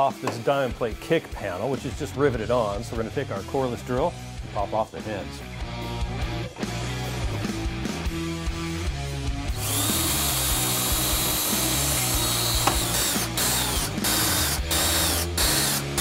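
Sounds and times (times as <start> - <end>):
cordless drill drilling metal: 9.5 - 16.0.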